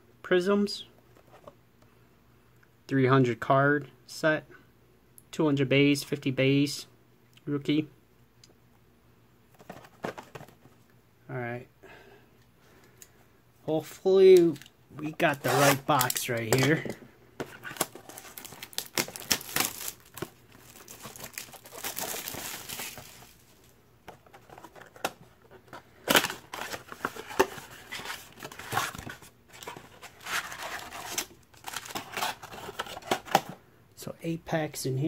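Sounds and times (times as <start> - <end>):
cardboard box tearing and crinkling: 17.6 - 23.4, 26.1 - 33.3.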